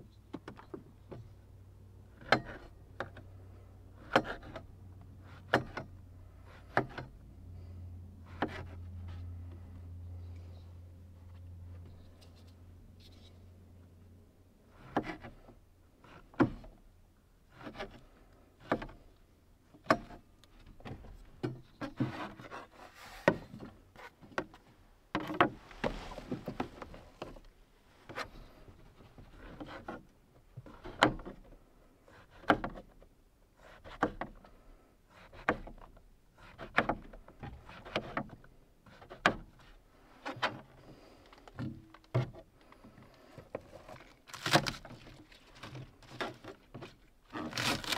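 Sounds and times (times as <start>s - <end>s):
soft rubbing and handling: 7.6s - 13.8s, 21.0s - 30.8s, 42.4s - 47.9s.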